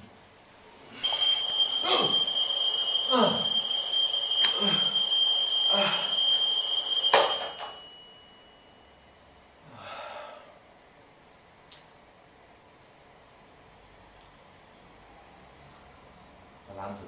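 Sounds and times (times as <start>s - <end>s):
alarm clock high-pitched tone: 1.0s - 9.0s
man groaning: 3.1s - 3.5s.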